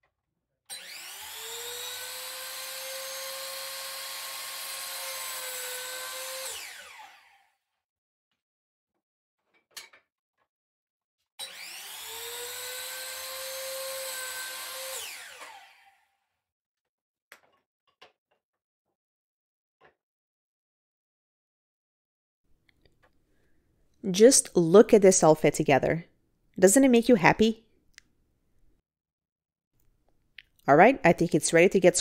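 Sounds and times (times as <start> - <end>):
miter saw whining: 0.7 - 7.4, 11.4 - 16.0.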